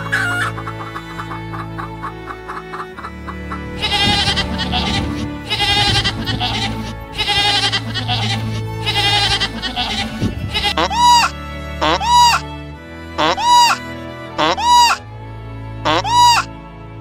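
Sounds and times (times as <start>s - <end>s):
goats bleating: 0.0s - 12.5s
background music: 0.0s - 17.0s.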